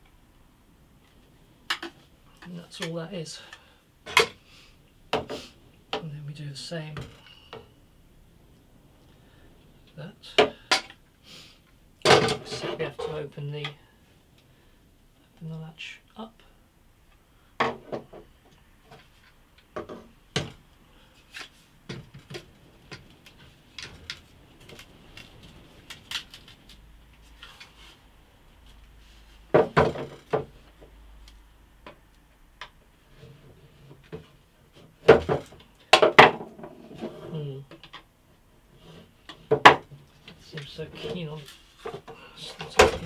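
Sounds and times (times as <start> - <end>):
wooden panels knocking and clicking: 17.6 - 20.6, 29.5 - 30.9, 35.0 - 38.1, 39.3 - 40.0, 41.8 - 43.0.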